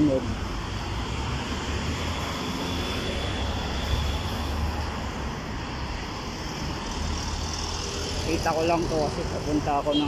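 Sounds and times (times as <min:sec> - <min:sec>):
cars driving past: 0:00.0 - 0:10.0.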